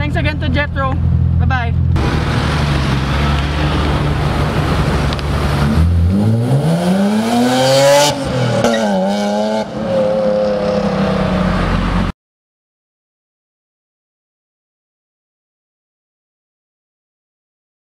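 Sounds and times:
car engine accelerating: 0.1s - 12.1s.

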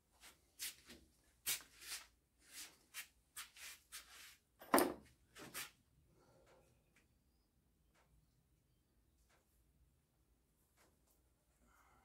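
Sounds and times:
scuffing and rubbing: 0.2s - 4.4s.

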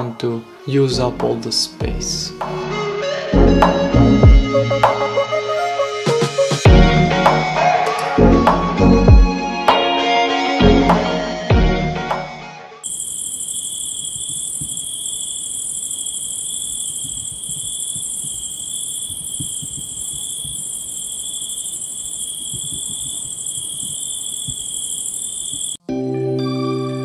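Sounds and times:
music: 0.0s - 12.8s, 25.9s - 27.0s
crickets chirring: 12.8s - 25.8s.

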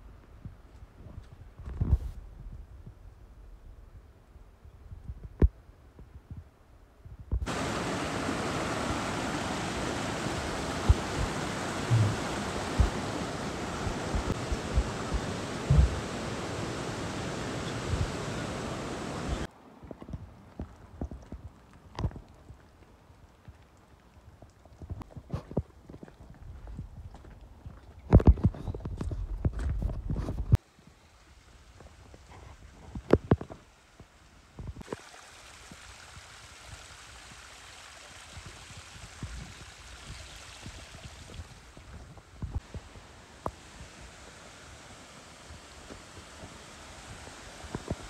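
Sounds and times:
river rushing over boulders: 7.4s - 19.5s, 42.5s - 48.0s
water trickling over rock: 7.4s - 19.5s, 20.1s - 29.5s, 34.6s - 48.0s
low thuds: 10.6s - 17.1s.

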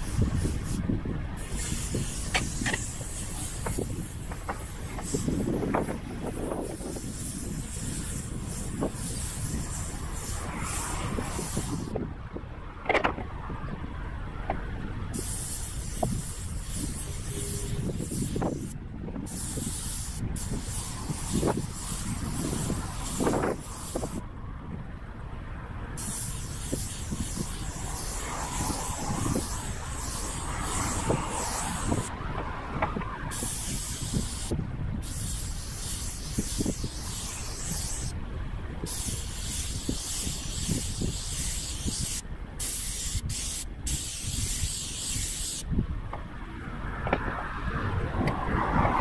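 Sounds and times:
paint spray gun hissing: 1.4s - 11.9s, 15.2s - 24.2s, 26.0s - 32.1s, 33.3s - 38.2s, 38.8s - 45.6s.

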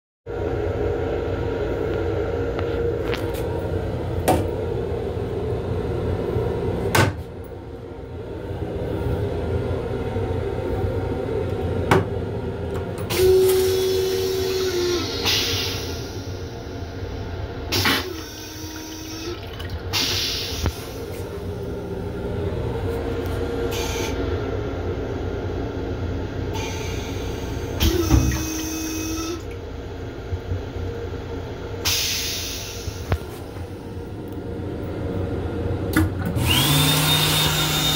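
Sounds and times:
motor hum: 0.3s - 37.9s
toilet flushing: 17.7s - 21.7s, 26.6s - 29.6s.

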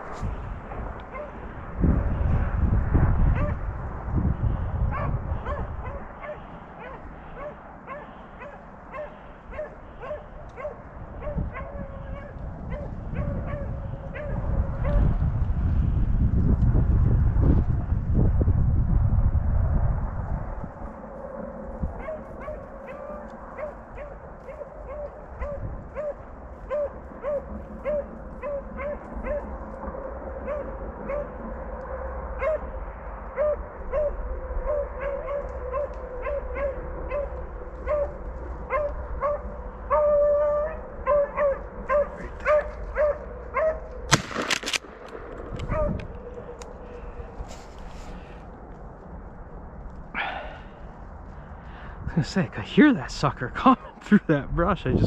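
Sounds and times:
low rumbling noise: 0.0s - 55.0s
dogs baying and yelping: 1.0s - 1.5s, 3.3s - 3.6s, 4.9s - 15.1s, 21.8s - 31.5s, 32.4s - 44.1s, 44.9s - 48.4s.

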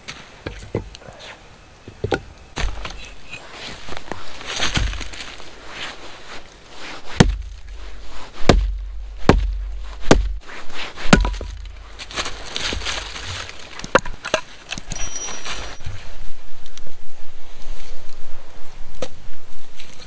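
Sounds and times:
wood splitting: 2.0s - 3.1s, 4.4s - 5.4s, 7.2s - 15.0s
axe chopping log: 7.2s - 7.8s, 8.4s - 12.9s.

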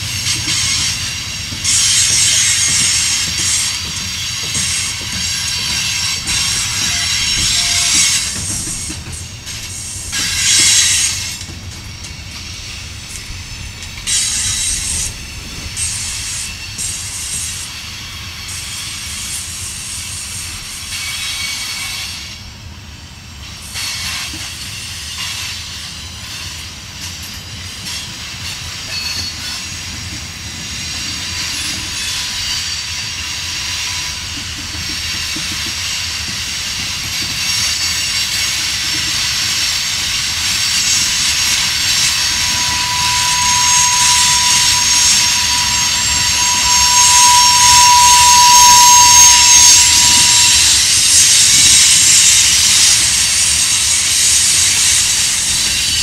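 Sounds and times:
train wheels rolling on rail: 0.0s - 56.0s
wheel squeal: 27.9s - 56.0s.

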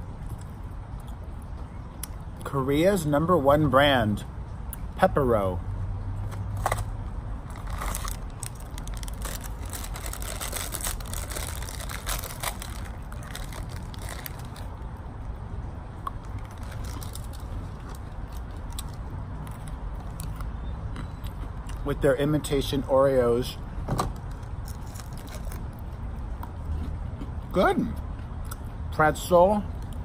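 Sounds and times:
low steady rumble: 0.0s - 30.0s
plastic snack packet crinkling: 7.5s - 14.8s, 16.3s - 18.0s, 24.7s - 25.6s.

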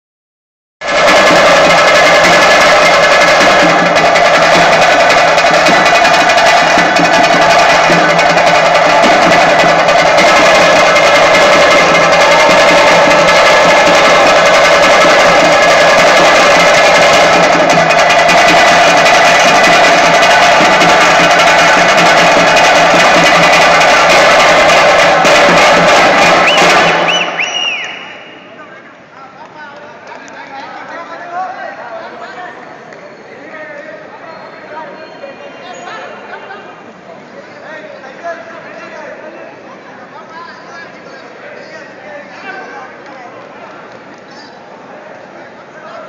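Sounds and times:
loud fast drumming: 0.8s - 28.6s.

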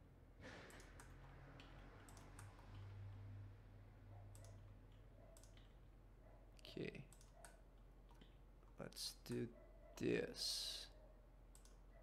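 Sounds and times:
computer keyboard and mouse clicks: 0.6s - 3.2s, 4.3s - 5.8s, 7.1s - 8.4s, 11.5s - 11.8s.

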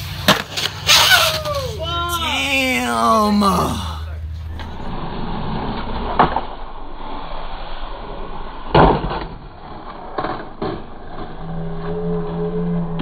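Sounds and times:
skateboard wheels rolling: 0.0s - 1.9s.

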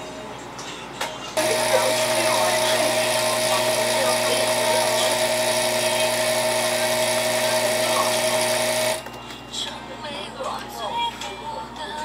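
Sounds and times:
electric motor whine: 1.4s - 9.1s.

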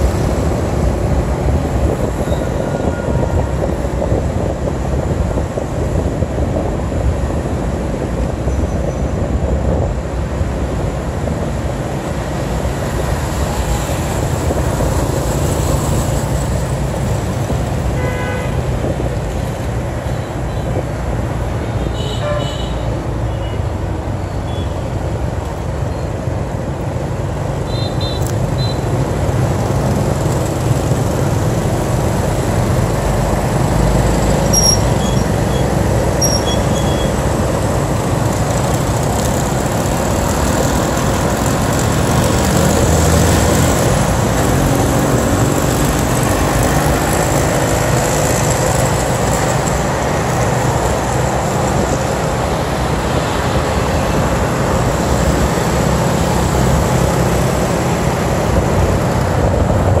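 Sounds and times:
wind rushing over microphone: 0.0s - 21.8s, 28.4s - 60.0s
motorbike engine and tyre noise: 0.0s - 60.0s
other motorbikes running: 25.2s - 60.0s.

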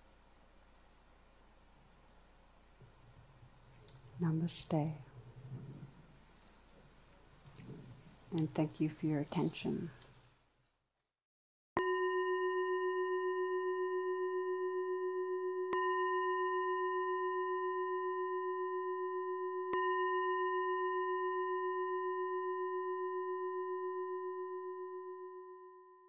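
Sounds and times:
singing bowl ringing: 11.8s - 26.0s.

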